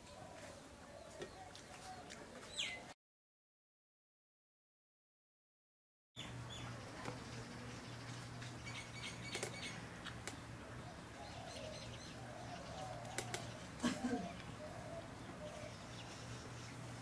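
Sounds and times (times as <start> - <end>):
birds chirping: 0.0 - 3.0, 6.2 - 17.0.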